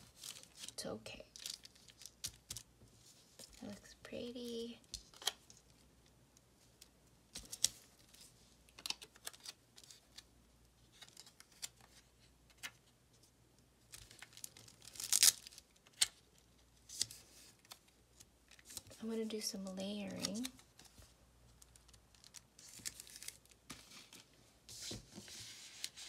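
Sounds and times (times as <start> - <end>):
stickers peeling and rustling: 7.3 - 10.3, 19.9 - 24.2.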